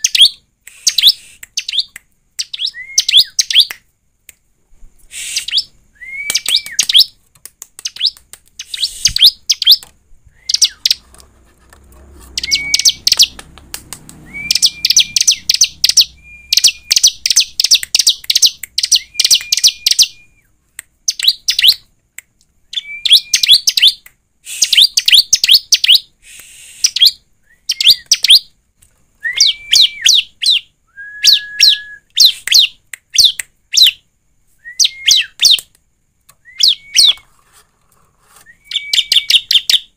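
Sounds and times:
bird whistling and chirping: 0.0 - 3.7, 5.1 - 7.1, 7.8 - 11.0, 12.3 - 13.4, 14.2 - 20.5, 21.1 - 21.8, 22.7 - 28.5, 29.2 - 34.0, 34.6 - 35.6, 36.4 - 37.2, 38.4 - 39.9.

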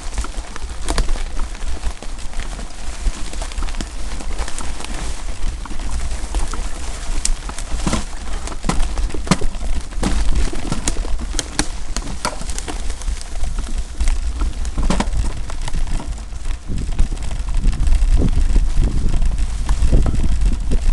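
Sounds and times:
bike clattering over bumps: 0.0 - 20.9
low rumble: 4.4 - 20.9.

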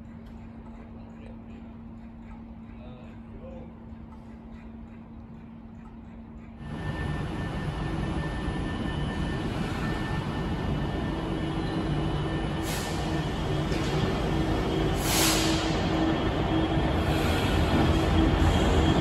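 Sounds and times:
diesel locomotive engine drone: 0.0 - 19.0
short bursts of hiss: 15.0 - 15.8.

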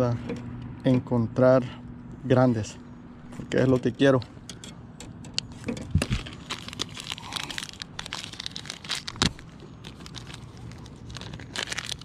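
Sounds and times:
plastic and paper package crinkling: 5.9 - 12.0.

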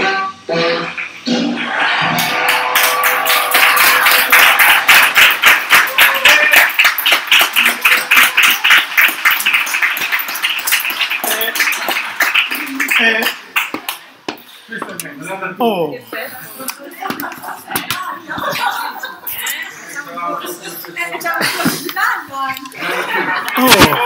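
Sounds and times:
group clapping: 0.8 - 14.5, 16.6 - 18.8, 21.3 - 24.0.

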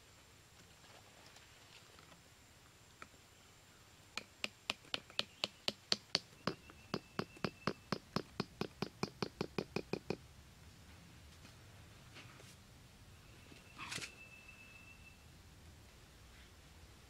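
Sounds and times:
metal blade tapping bamboo: 4.2 - 10.2.

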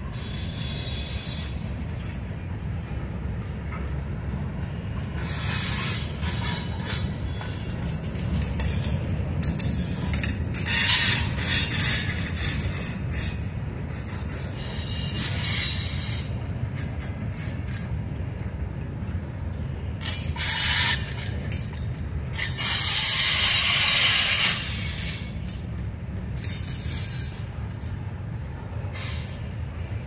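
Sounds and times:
freight cars rumbling on rails: 0.0 - 30.0
high hissing wheel screech: 0.1 - 1.6, 5.2 - 7.4, 14.6 - 16.4, 22.4 - 25.3, 26.5 - 27.5, 28.9 - 29.6.

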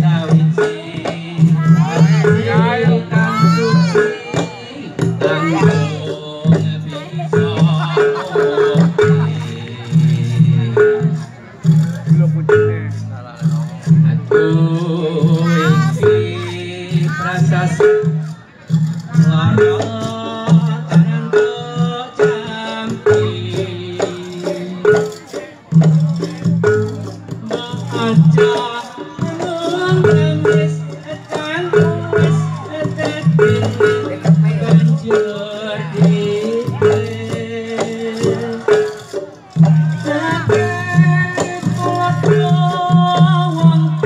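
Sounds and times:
hand drums beating: 0.0 - 44.0
sustained melody: 0.1 - 25.4.

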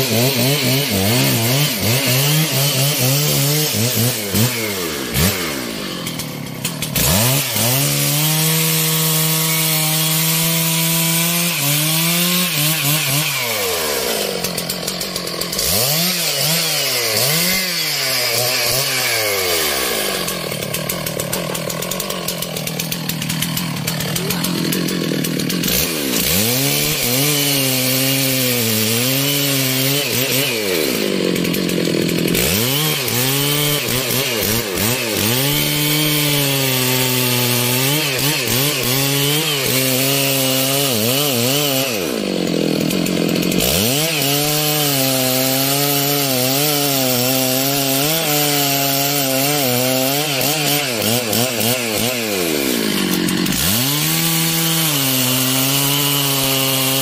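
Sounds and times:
chainsaw cutting wood: 0.0 - 57.0.

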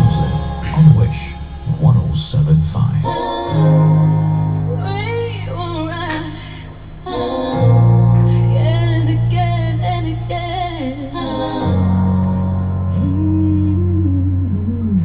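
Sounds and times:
low sustained accompaniment chords: 0.0 - 15.0
woman singing a slow ballad: 4.7 - 15.0.

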